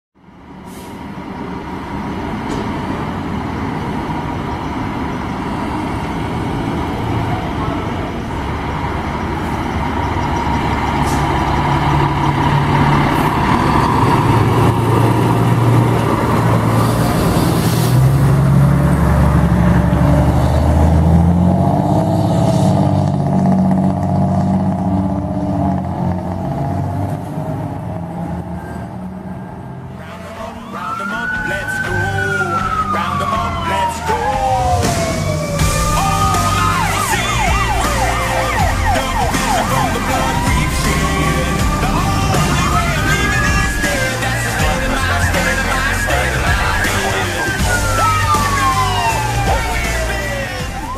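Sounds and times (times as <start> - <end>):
diesel engine revving: 0.2 - 50.9
air brake hiss: 0.6 - 1.1.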